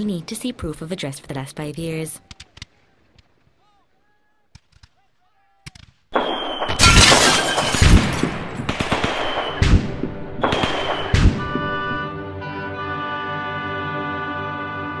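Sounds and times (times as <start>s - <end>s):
crackling gunfire: 4.5s - 11.9s
heavy explosions: 6.8s - 12.0s
music: 11.0s - 15.0s.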